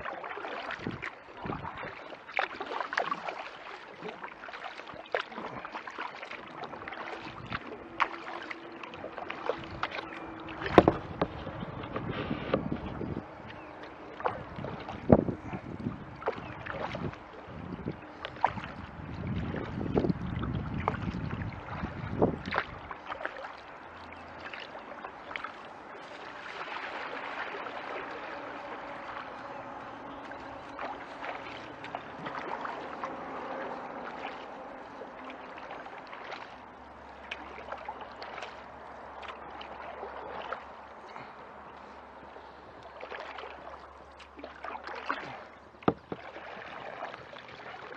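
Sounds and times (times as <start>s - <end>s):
paddle splashing in water: 0.0s - 47.9s
small knocks: 45.8s - 46.2s.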